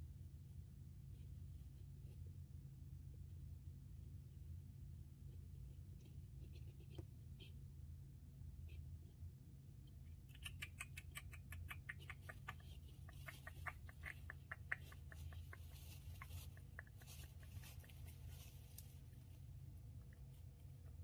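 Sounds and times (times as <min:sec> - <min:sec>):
hamster nibbling clicks: 0:09.8 - 0:18.9.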